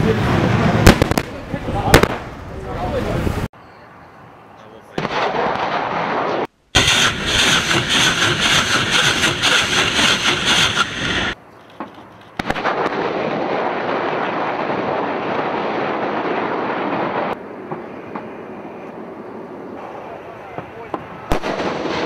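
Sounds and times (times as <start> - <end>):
rocket launcher firing salvo: 0.1 - 2.4, 4.9 - 11.4, 19.8 - 22.0.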